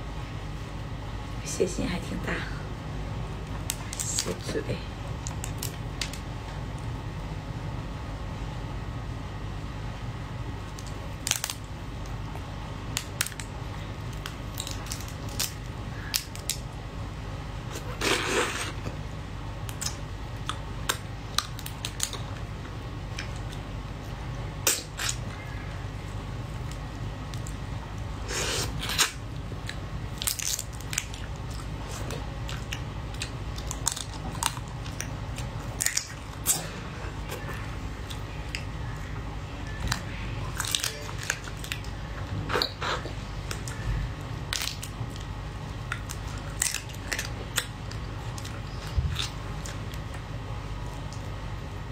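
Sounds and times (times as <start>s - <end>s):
low steady hum: 0.0s - 51.9s
crab shell cracking: 12.9s - 16.7s, 28.9s - 36.6s, 44.5s - 48.5s
person biting and chewing: 28.2s - 38.8s, 44.5s - 51.2s.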